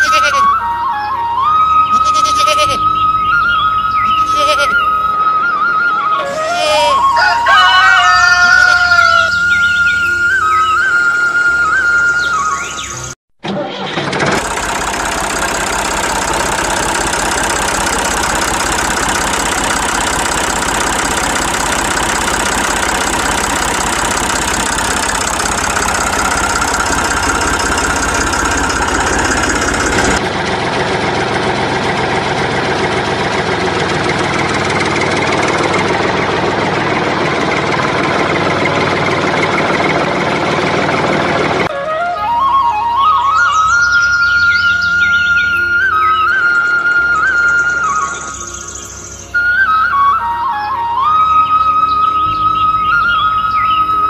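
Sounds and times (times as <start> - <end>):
tractor engine rattling: 0.0 - 1.5, 12.8 - 51.3.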